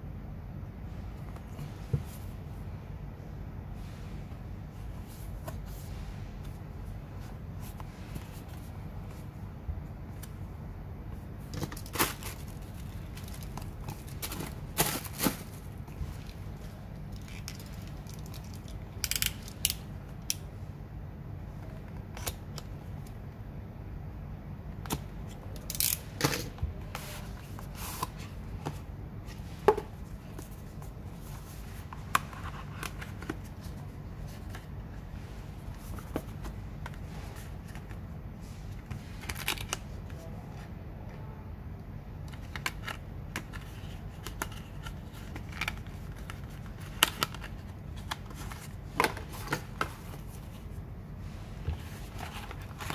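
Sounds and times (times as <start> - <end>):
steady low hum: 0.0 - 52.9
cardboard clicks scrapes and rustles: 42.4 - 52.9.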